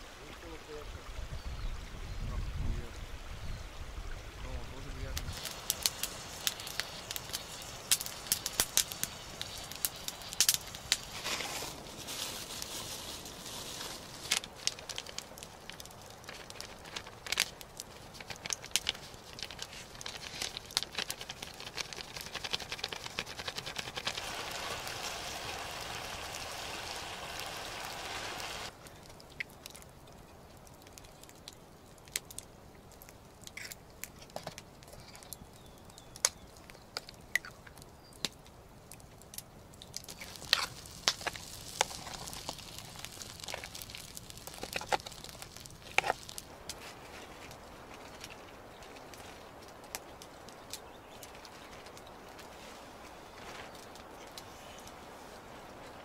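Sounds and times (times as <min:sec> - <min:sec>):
campfire crackling and popping: 0:04.7 - 0:56.0
fire hissing: 0:05.1 - 0:28.8, 0:39.8 - 0:56.0.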